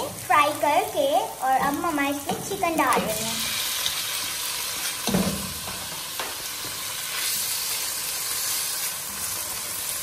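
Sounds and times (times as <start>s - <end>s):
chicken sizzling in hot oil: 0.0s - 10.0s.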